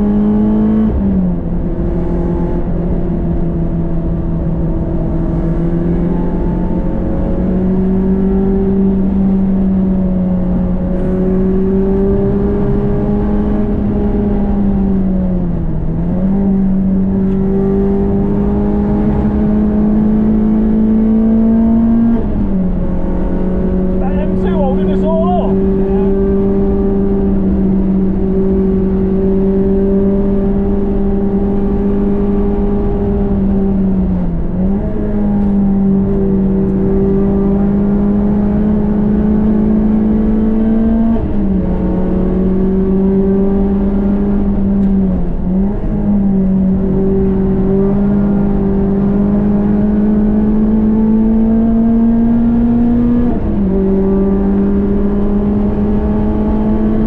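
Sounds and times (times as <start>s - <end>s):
car engine running hard: 0.0s - 57.0s.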